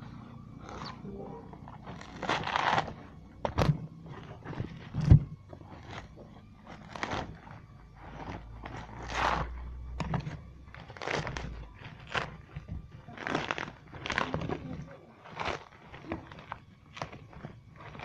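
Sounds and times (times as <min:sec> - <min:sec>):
cleaver chopping coconut husk: 0:01.7 - 0:03.8.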